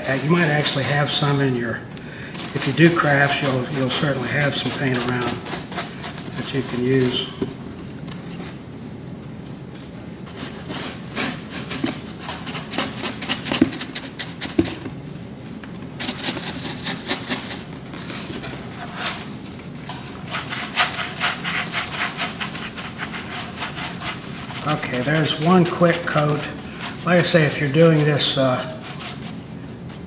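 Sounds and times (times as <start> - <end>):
paintbrush scrubbing strokes: 0.0 - 1.5, 2.4 - 7.4, 10.2 - 14.7, 20.1 - 30.0.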